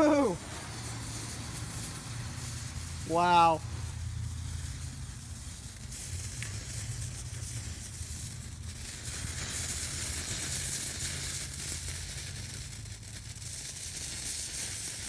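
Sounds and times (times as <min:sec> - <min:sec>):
mixture burning with hiss: 0:00.0 - 0:15.0.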